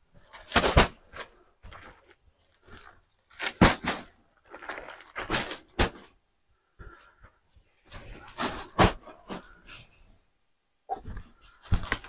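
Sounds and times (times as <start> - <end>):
plastic wrapping crinkling: 0.1 - 5.9.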